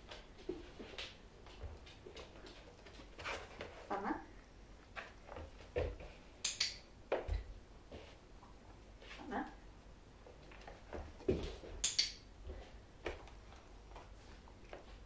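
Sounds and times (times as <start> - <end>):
dog paws on wooden floor: 0.0 - 4.0, 4.8 - 6.4, 10.2 - 11.8, 12.4 - 15.0
sharp high click: 6.4 - 6.9, 11.8 - 12.2
footsteps on wooden floor: 10.6 - 11.8.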